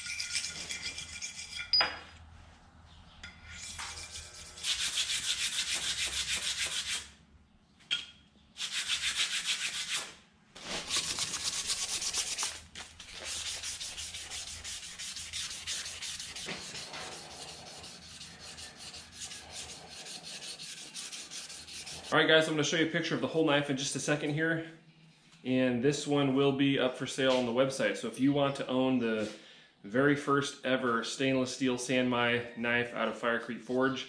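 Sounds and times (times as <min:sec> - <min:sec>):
sharp clink: 0:01.4 - 0:02.1
hand scraping a slab: 0:08.6 - 0:22.2.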